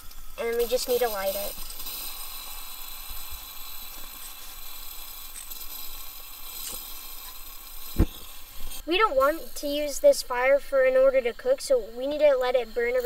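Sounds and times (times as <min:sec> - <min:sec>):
stove hiss: 0:00.0 - 0:13.0
lighter clicks and scrapes: 0:01.5 - 0:08.8.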